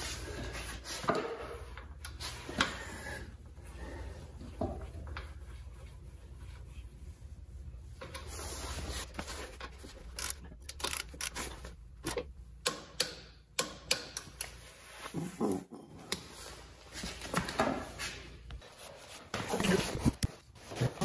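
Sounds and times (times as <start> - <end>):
ratchet wrench clicking: 10.1 - 11.5.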